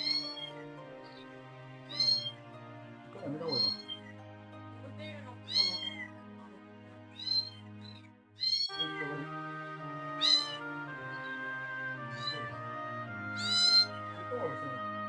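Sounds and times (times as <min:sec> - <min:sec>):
kittens mewing: 0:00.0 - 0:00.5, 0:01.9 - 0:02.3, 0:03.6 - 0:04.0, 0:05.5 - 0:06.1, 0:07.2 - 0:07.6, 0:08.4 - 0:08.9, 0:10.2 - 0:11.5, 0:12.1 - 0:12.6, 0:13.4 - 0:14.0
soft background music: 0:00.0 - 0:15.0.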